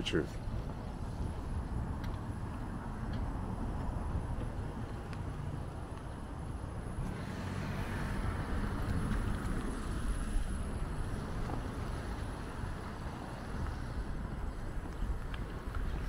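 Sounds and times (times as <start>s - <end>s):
wind rumble on microphone: 0.0s - 16.0s
cars hissing on wet road: 7.0s - 15.0s.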